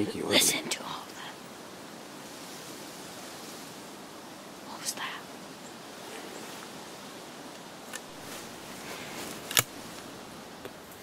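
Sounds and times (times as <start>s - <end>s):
faint rustles: 4.6s - 11.0s.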